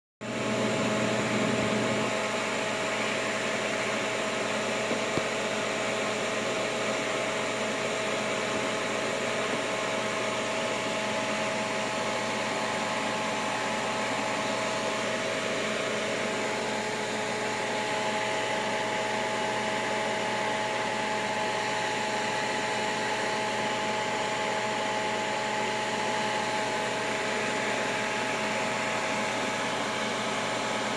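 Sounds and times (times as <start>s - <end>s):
electric fan whirring: 0.2s - 30.9s.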